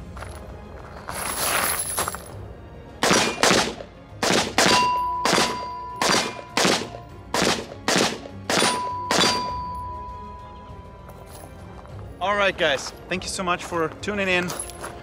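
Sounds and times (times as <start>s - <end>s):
rifle shots: 3.0s - 9.5s
steel targets ringing: 4.6s - 7.0s, 8.5s - 10.7s.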